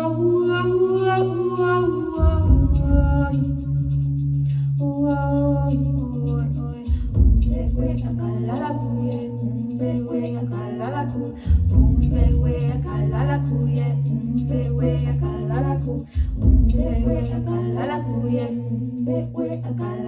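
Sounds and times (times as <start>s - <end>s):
woman singing wordless melody: 0.0s - 4.1s, 4.7s - 20.0s
looped vocal harmonies: 0.0s - 20.0s
low drone: 0.1s - 20.0s.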